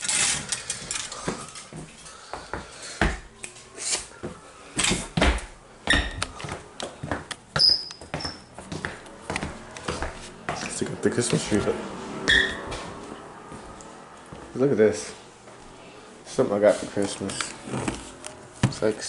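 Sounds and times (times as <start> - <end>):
footsteps on hardwood floor: 1.2 - 3.3, 4.2 - 11.7, 12.6 - 14.6, 17.0 - 18.9
brief high squeak: 12.3 - 12.6.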